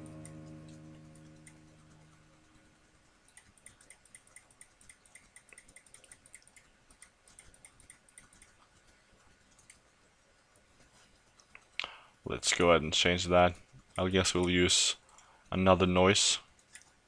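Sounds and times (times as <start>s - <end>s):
rapid computer mouse clicks: 1.4s - 12.0s, 13.5s - 15.4s, 16.5s - 17.0s.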